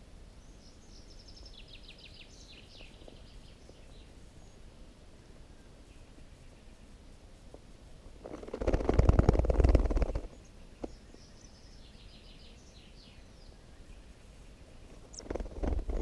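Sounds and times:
faint high bird chirps: 0.4 - 7.0, 9.9 - 16.0
scratchy rustling in nest: 8.2 - 11.0, 14.9 - 16.0.

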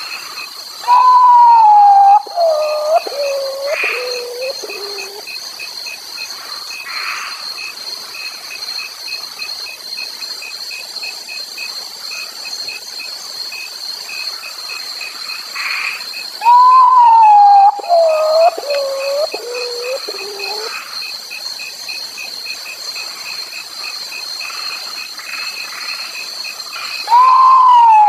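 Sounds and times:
night insect chorus: 0.0 - 28.0
bird whistled descending notes: 0.8 - 5.2, 16.4 - 20.7, 27.1 - 28.0
regular pulsing call: 0.8 - 5.4, 16.4 - 20.8, 26.8 - 28.0.

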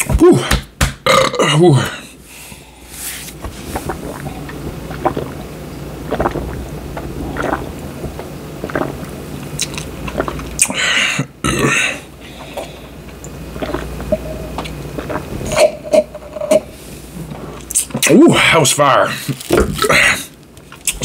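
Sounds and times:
man gulping beer: 3.6 - 16.7.

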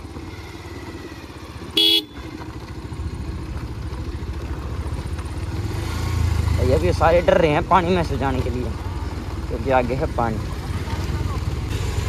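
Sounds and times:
motorcycle engine running: 0.0 - 12.0
short horn honk: 1.8 - 2.3.

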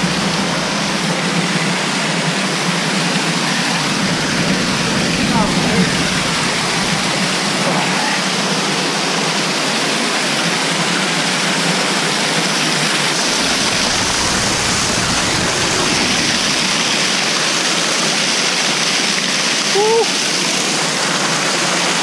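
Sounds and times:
deep rumble: 0.0 - 2.1, 3.4 - 8.8, 13.1 - 17.8
waterfall pouring onto rocks: 3.8 - 22.0.

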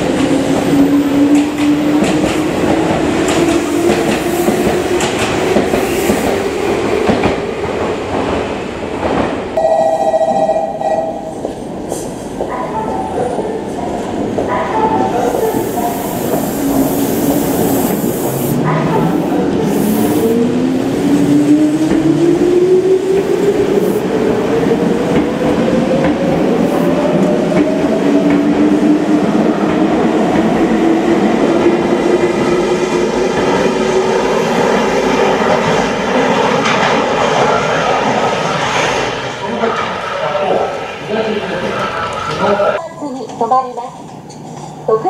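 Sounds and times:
train wheels clattering on rails: 0.0 - 9.6.

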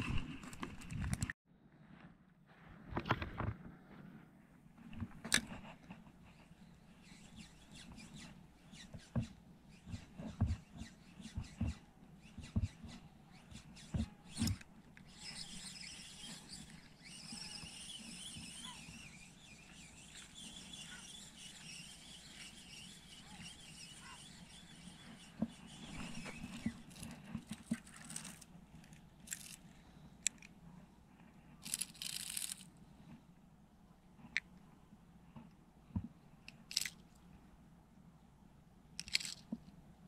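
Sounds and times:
fishing reel whirring: 13.5 - 28.4, 29.3 - 29.6, 31.6 - 32.7.

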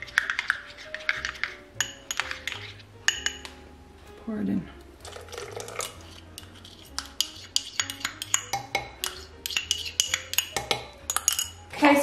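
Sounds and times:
quiet background music: 0.0 - 12.0
spoon clinking against cup: 0.1 - 3.5, 5.1 - 11.6.

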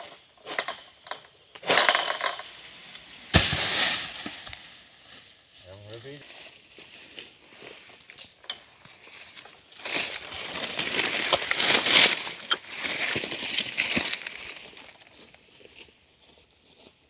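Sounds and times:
foliage rustling and crackling: 2.4 - 15.4.

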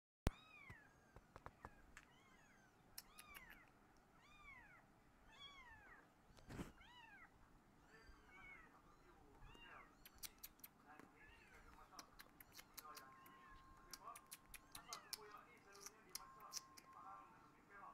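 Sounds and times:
kitten mewing: 1.6 - 7.3, 9.4 - 16.8
faint clicks: 2.9 - 4.1, 9.3 - 17.0.

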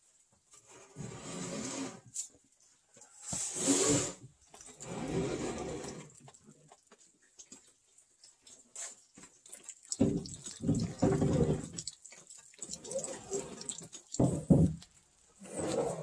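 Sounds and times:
wood scraping over wood: 0.6 - 2.3, 3.2 - 4.2, 4.8 - 6.1
dull knocks of wooden beams: 14.2 - 14.8.

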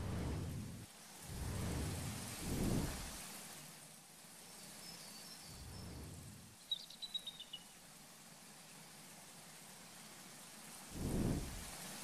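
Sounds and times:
deep rumbling swells: 0.0 - 3.1, 5.6 - 6.5
bird chirping: 6.6 - 7.8.

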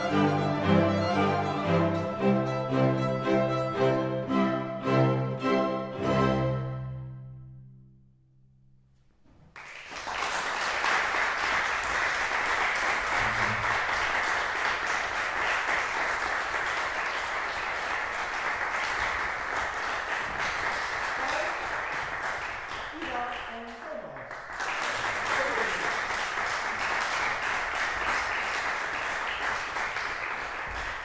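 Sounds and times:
bassoon and string quartet chord: 0.0 - 7.9
audience applause: 9.5 - 31.0.

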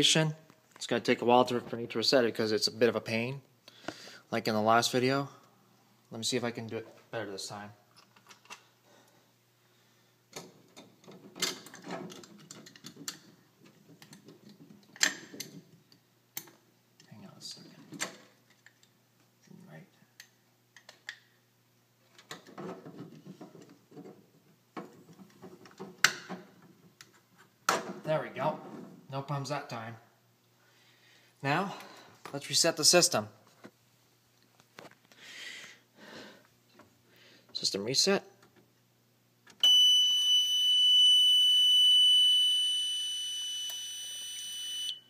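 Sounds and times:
fire alarm panel buzzer tone: 39.6 - 45.0.

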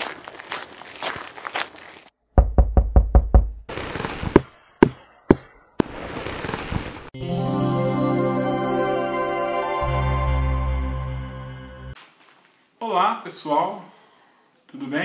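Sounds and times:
knocking on door: 2.4 - 3.7
music: 7.2 - 12.0
footsteps: 12.0 - 12.7.

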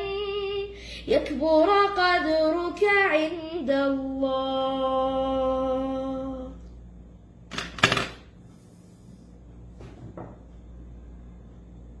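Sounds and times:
child singing: 0.0 - 6.5
low steady hum: 0.0 - 12.0.

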